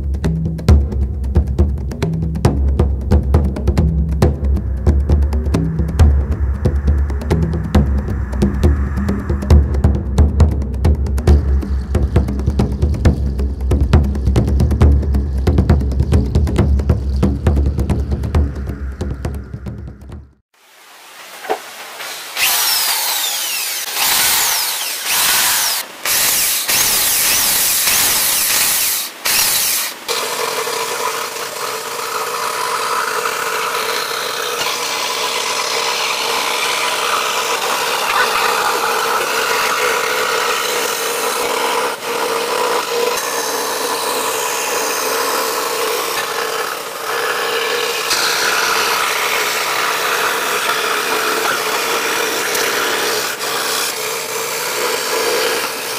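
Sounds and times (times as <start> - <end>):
scroll saw cutting plywood: 21.9 - 55.9.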